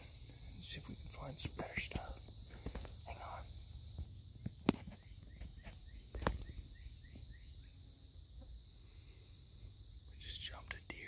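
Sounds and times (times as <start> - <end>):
high insect drone: 0.0 - 11.0
bird chirping: 0.6 - 11.0.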